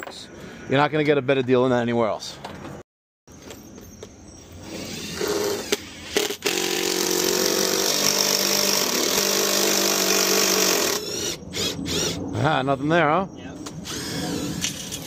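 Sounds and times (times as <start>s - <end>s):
cordless driver motor: 4.6s - 12.2s, 13.8s - 14.8s.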